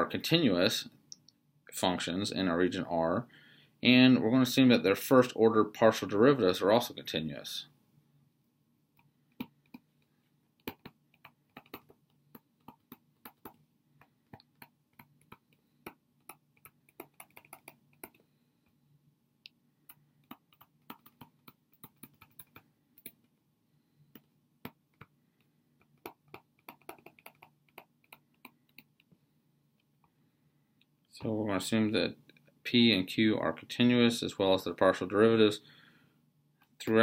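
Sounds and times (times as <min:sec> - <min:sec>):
stylus tapping on tablet screen: 0:09.0 - 0:18.3, 0:19.8 - 0:23.4, 0:24.1 - 0:29.2.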